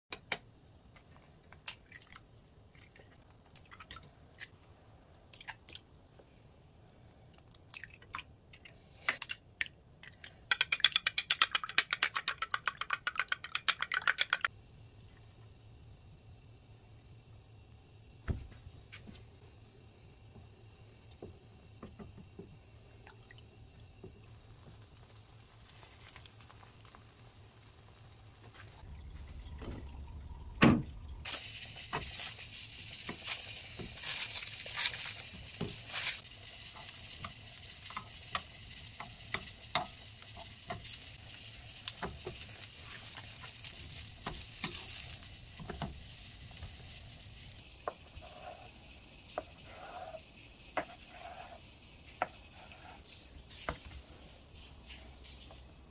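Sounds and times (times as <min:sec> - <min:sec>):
food sizzling in a pan: 0:23.4 - 0:28.8, 0:31.2 - 0:55.8.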